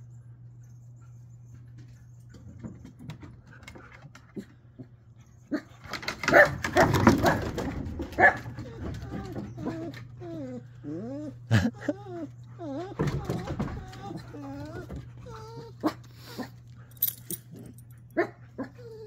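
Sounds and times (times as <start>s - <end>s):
faint low hum: 0.0s - 19.0s
dogs barking and yelping: 5.3s - 19.0s.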